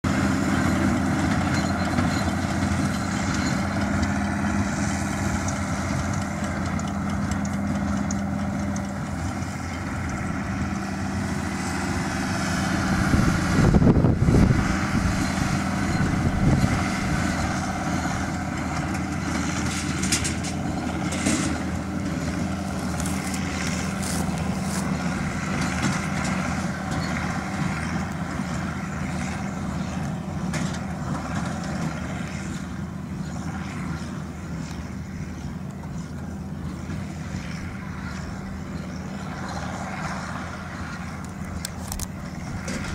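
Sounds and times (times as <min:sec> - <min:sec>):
tractor diesel engine under load: 0:00.0 - 0:42.9
louder rumble: 0:09.3 - 0:30.0.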